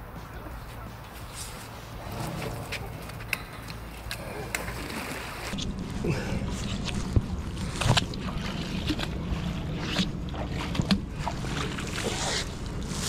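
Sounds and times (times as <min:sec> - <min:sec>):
water splashing and dripping: 0:06.5 - 0:13.0.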